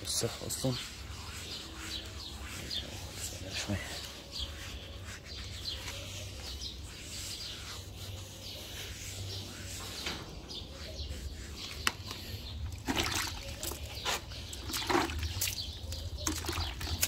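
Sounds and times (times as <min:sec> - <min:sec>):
small birds chirping: 0:00.0 - 0:17.0
water sloshing in a bucket: 0:12.6 - 0:17.0.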